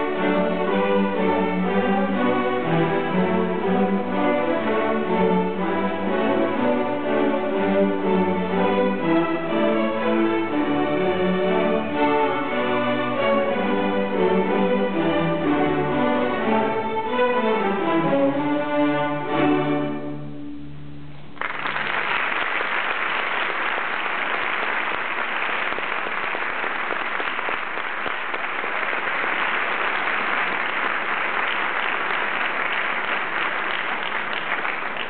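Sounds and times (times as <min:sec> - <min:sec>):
string orchestra playing a march: 0:00.0 - 0:20.6
audience applause: 0:21.4 - 0:35.0.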